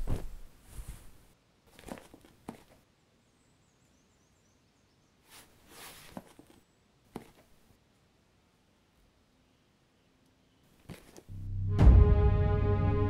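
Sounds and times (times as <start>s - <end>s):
rustling: 0.0s - 2.9s, 5.2s - 7.7s, 10.7s - 11.3s.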